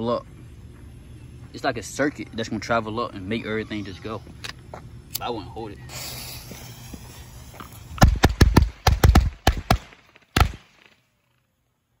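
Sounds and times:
firecracker fuse hissing: 5.2s - 8.0s.

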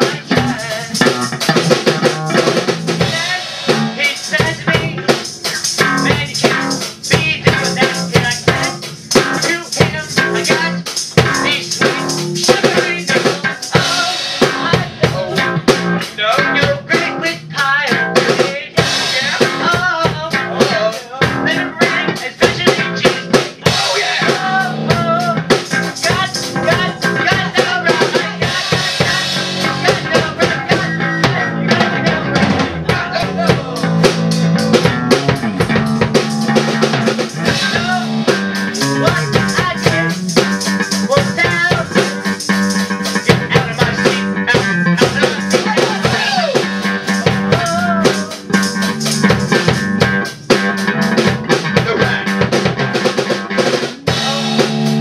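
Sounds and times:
drum kit played busily: 0.0s - 55.0s
electric guitar: 0.0s - 55.0s.

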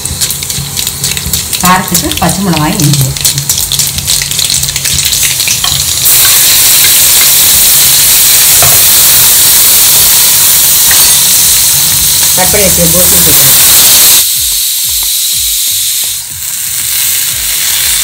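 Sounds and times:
steel spatula stirring: 0.0s - 7.0s
hot oil sizzling in wok: 0.0s - 18.0s
seeds crackling in oil: 0.0s - 18.0s.

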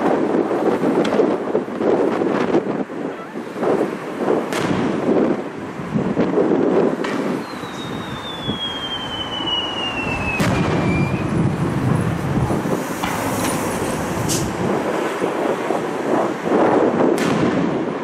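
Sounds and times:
fireworks bursting with sharp bangs: 0.0s - 2.8s, 3.6s - 18.0s
high whistle falling in pitch: 7.4s - 11.3s
steady low rumble: 8.5s - 18.0s.

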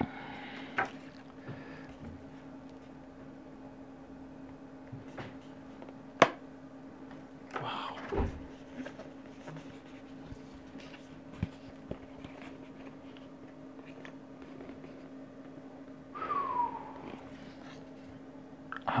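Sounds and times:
steady low hum: 0.0s - 19.0s
falling ooh vocal sound: 16.2s - 17.4s.

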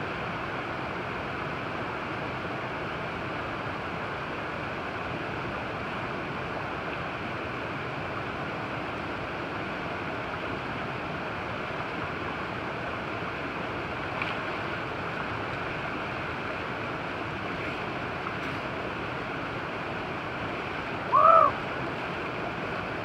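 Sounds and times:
river rushing over rocks: 0.0s - 23.0s
loud call rising and falling: 21.1s - 21.6s.

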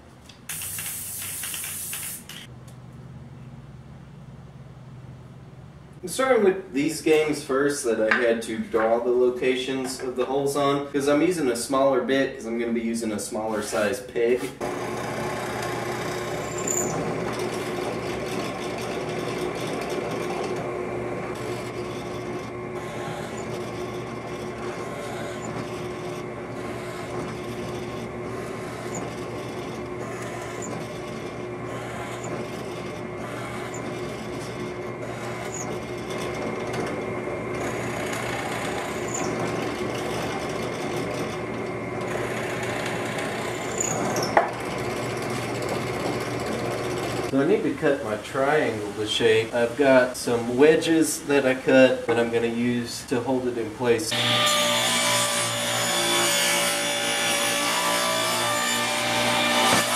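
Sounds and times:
drill bit cutting wood: 14.6s - 47.3s, 54.1s - 59.9s
drill press motor hum: 14.6s - 47.3s.

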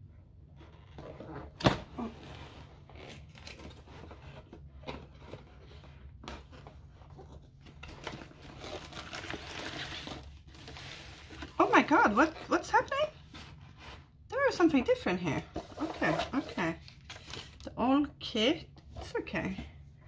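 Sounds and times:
cardboard box rustling and scraping: 0.6s - 12.5s, 13.1s - 17.6s.

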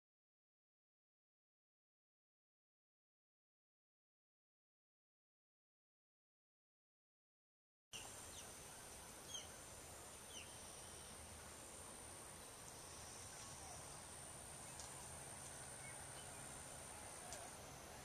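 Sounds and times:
faint background hiss: 8.0s - 18.0s.

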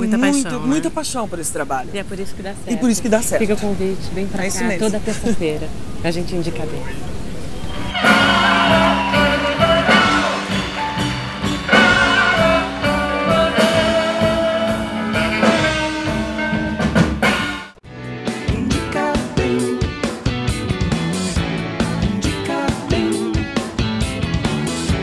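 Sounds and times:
guitar-led tune: 7.7s - 25.0s
band music with drum kit: 7.9s - 25.0s.

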